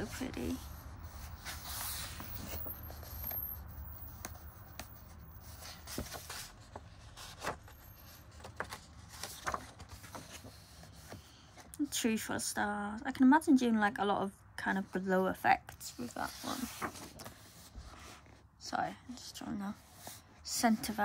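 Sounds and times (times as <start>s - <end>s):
paper rustling: 0.0s - 3.4s, 4.0s - 11.7s, 16.0s - 18.4s.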